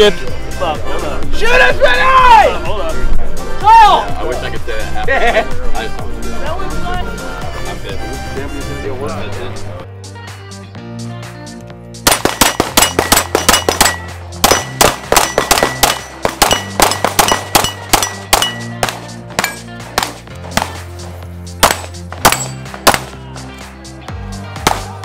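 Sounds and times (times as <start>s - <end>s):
background music with bass line: 0.0s - 25.0s
steel plate targets ringing: 12.1s - 19.7s, 21.6s - 23.1s
pistol shots: 12.1s - 20.8s, 21.6s - 23.2s.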